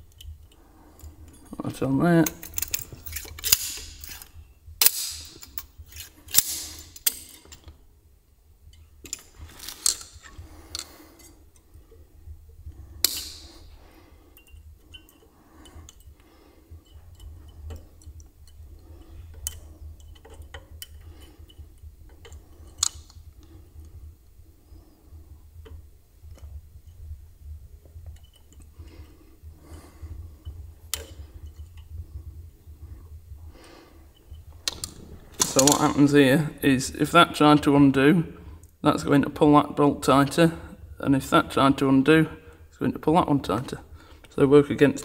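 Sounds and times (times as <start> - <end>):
steady low hum: 0.0 - 45.0
pliers and wire clicking: 2.2 - 7.8, 13.0 - 13.6, 16.8 - 23.4, 30.4 - 31.9, 34.1 - 36.0.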